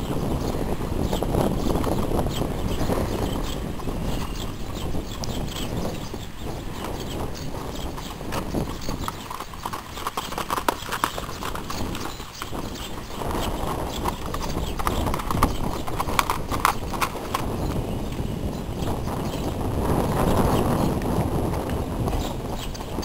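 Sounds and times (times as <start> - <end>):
horse hoofbeats on dirt: 1.3 - 18.2.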